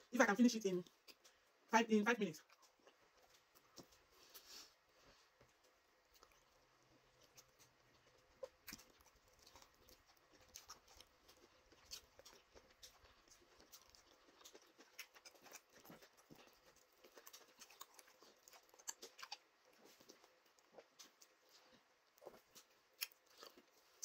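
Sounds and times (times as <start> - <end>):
wet eating smacks and squishes: 5.4 - 24.0.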